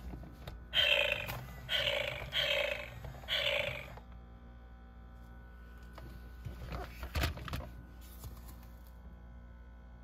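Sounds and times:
faint steady hum: 0:00.0 - 0:10.0
rough electronic cat sound: 0:00.7 - 0:04.0.

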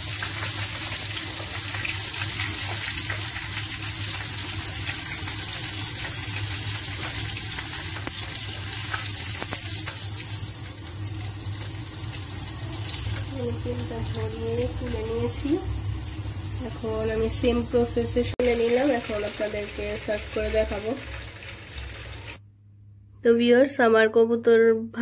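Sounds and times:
meat deep-frying in oil: 0:00.0 - 0:22.4.

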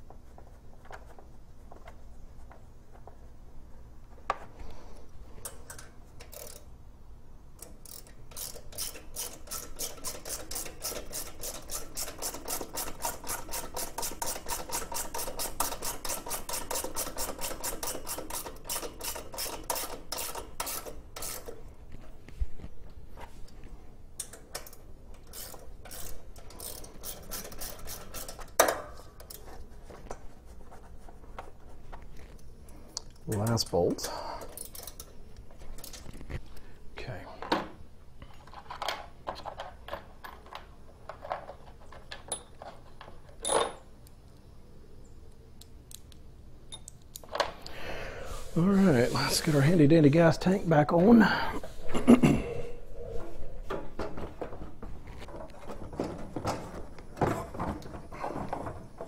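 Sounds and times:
socket wrench ratchet clicking: 0:05.5 - 0:06.7, 0:07.6 - 0:21.5, 0:24.2 - 0:29.4.

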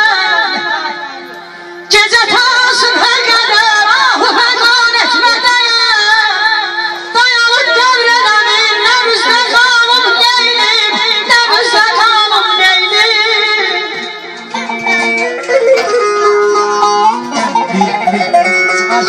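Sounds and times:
woman singing through microphone: 0:00.0 - 0:14.5.

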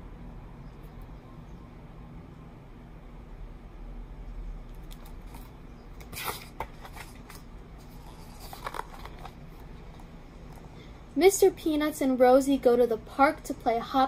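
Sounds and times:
book pages turning: 0:04.7 - 0:10.1.

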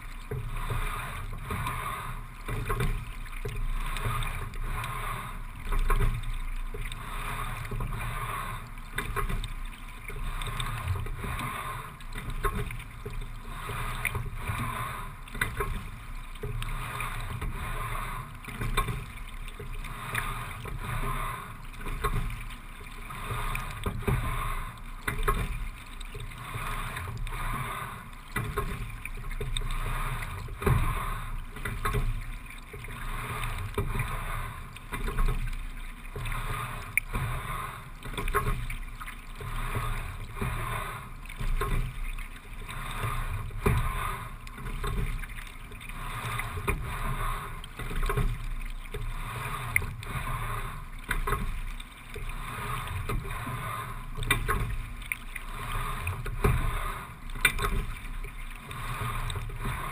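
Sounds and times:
water washing along rowing boat: 0:00.0 - 0:59.9.

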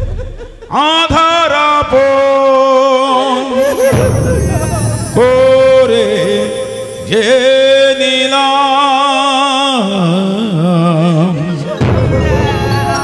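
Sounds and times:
slow song with held notes: 0:03.1 - 0:13.0.

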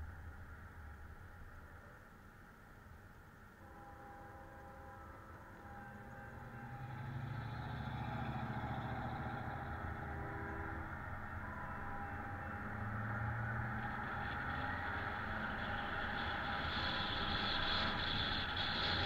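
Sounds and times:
road and wind noise: 0:00.0 - 0:19.0
car engine hum: 0:04.9 - 0:19.0.

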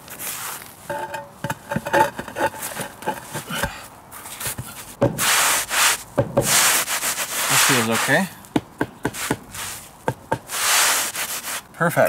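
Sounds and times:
slab scraping on sand: 0:05.2 - 0:08.3, 0:09.2 - 0:09.8, 0:10.5 - 0:11.7
rubber mallet knocks: 0:06.2 - 0:06.5.

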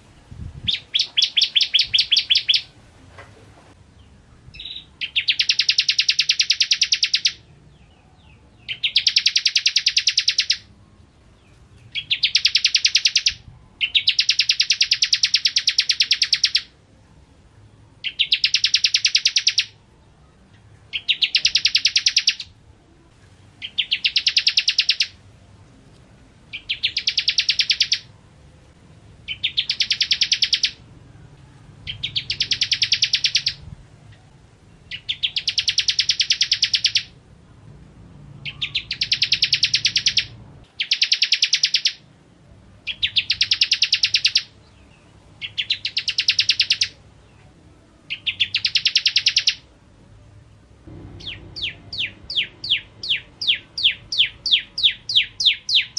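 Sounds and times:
bird singing high rapid trill: 0:00.0 - 0:02.8, 0:04.0 - 0:16.8, 0:17.9 - 0:22.6, 0:23.6 - 0:25.2, 0:26.5 - 0:28.2, 0:29.2 - 0:31.0, 0:31.8 - 0:37.2, 0:38.4 - 0:42.1, 0:42.8 - 0:49.8, 0:50.8 - 0:55.9.

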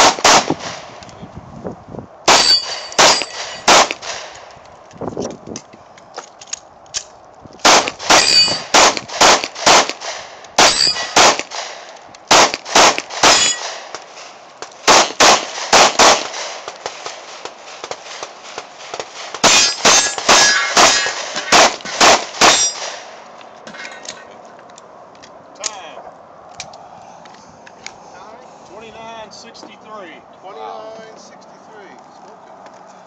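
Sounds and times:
pistol shots: 0:00.0 - 0:00.9, 0:02.3 - 0:04.4, 0:07.6 - 0:14.0, 0:14.8 - 0:23.1
steel targets pinging: 0:02.3 - 0:04.3, 0:07.7 - 0:10.0, 0:10.6 - 0:11.7, 0:12.3 - 0:13.9, 0:18.9 - 0:24.3.

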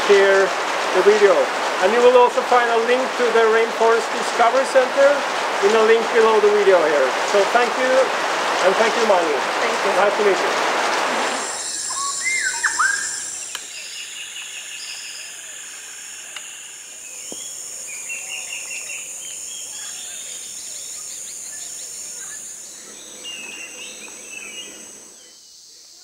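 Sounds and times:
birds calling: 0:10.9 - 0:25.4
loud swooping bird calls: 0:11.1 - 0:24.9
high-pitched insect drone: 0:11.3 - 0:26.0
bird chirping phrases: 0:11.4 - 0:15.3, 0:17.1 - 0:25.7.

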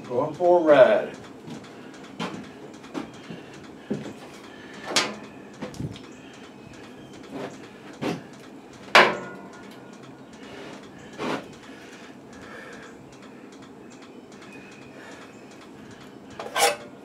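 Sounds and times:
tools and metal parts clunking: 0:04.8 - 0:05.8, 0:08.9 - 0:09.8, 0:16.3 - 0:17.0.

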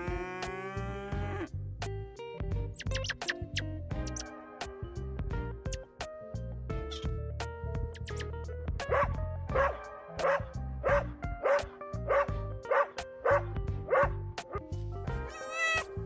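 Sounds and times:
background music: 0:00.0 - 0:16.0
dog barking: 0:08.9 - 0:14.6
cat meowing: 0:15.3 - 0:16.0.

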